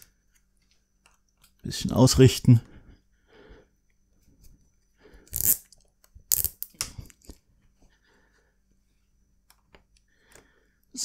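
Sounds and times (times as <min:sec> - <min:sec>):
cable ties ratcheting: 0:05.3 - 0:05.7, 0:06.3 - 0:06.8.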